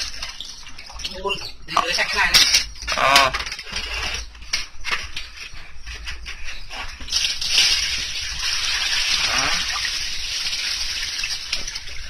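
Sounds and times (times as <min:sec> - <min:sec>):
water pouring onto concrete: 0:07.1 - 0:12.0.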